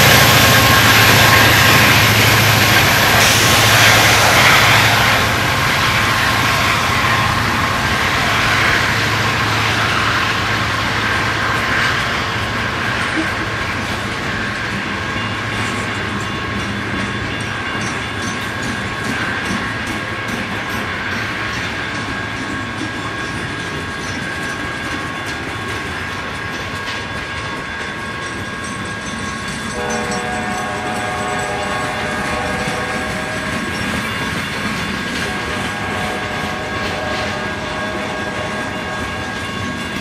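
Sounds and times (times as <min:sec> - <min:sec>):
train wheels on rails: 0:00.0 - 0:40.0
locomotive air horn: 0:29.8 - 0:33.7, 0:35.2 - 0:39.4.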